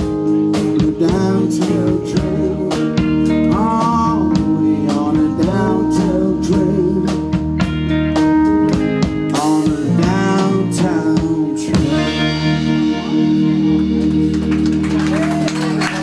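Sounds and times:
man singing: 0:00.0 - 0:07.5, 0:09.2 - 0:13.7
drum kit: 0:00.0 - 0:16.0
electric guitar: 0:00.0 - 0:16.0
keyboard: 0:00.0 - 0:16.0.

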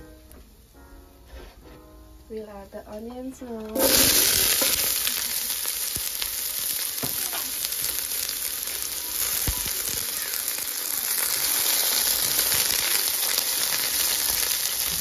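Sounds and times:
onions sizzling in oil: 0:03.4 - 0:15.0.

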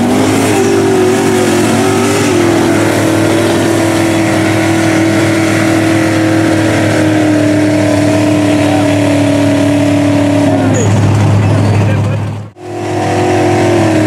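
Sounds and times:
truck engine at high revs: 0:00.0 - 0:14.0.

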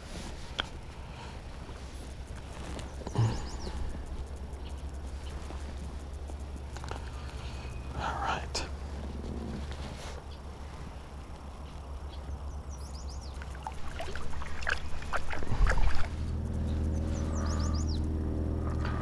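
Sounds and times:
droning tone: 0:00.0 - 0:19.0
low hum: 0:00.0 - 0:19.0
water splashing: 0:13.3 - 0:17.6.

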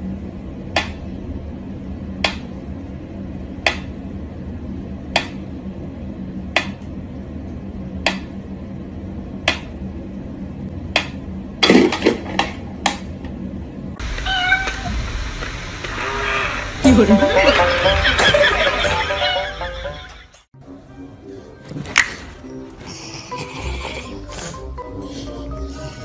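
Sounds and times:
low hum: 0:00.0 - 0:11.6.

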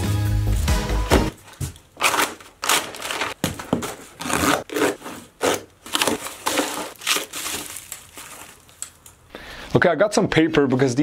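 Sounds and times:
tape and wrapping crinkling: 0:01.3 - 0:09.3
knife slicing packing tape: 0:02.0 - 0:08.0.

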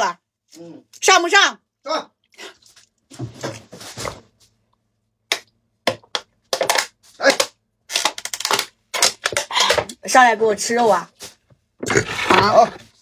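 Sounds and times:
person gulping: 0:11.8 - 0:12.6.

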